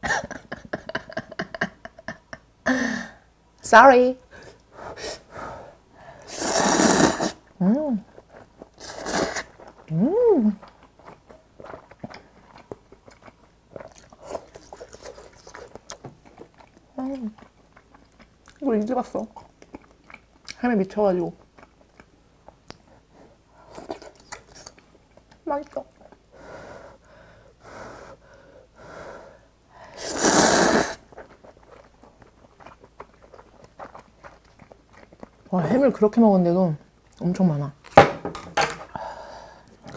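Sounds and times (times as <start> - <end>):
person slurping noodles: 6.3 - 7.4, 8.8 - 9.5, 30.0 - 31.0
wet chewing sounds: 7.4 - 26.3, 31.0 - 36.2, 39.5 - 39.9
person humming: 9.9 - 10.6.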